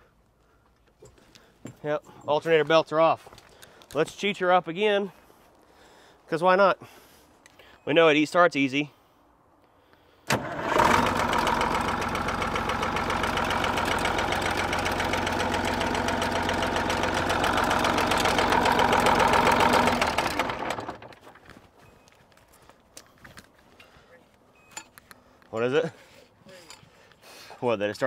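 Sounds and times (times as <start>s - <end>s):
truck engine starting and idling: 10.3s - 21.5s.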